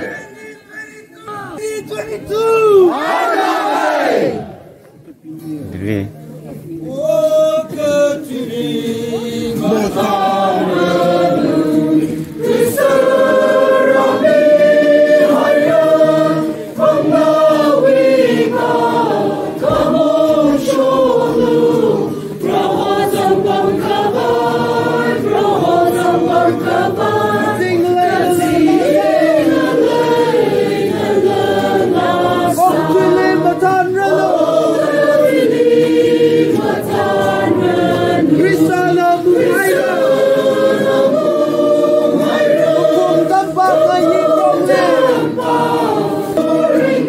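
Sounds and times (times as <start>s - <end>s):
choir singing: 2.9s - 4.6s, 6.9s - 47.0s.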